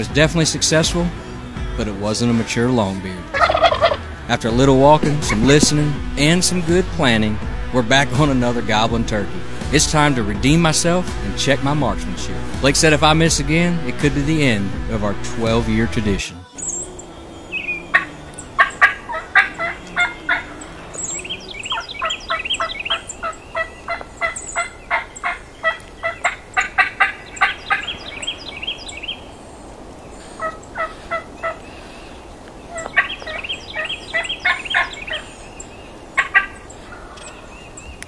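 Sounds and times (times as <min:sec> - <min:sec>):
wild turkey gobbling: 0:03.2 - 0:04.1, 0:16.6 - 0:37.6.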